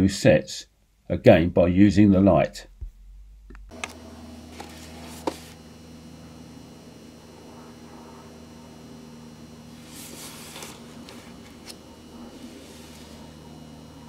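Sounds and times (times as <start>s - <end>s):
faint electrical hum: 0.0s - 14.0s
rustle of handling: 4.5s - 5.6s, 9.8s - 13.4s.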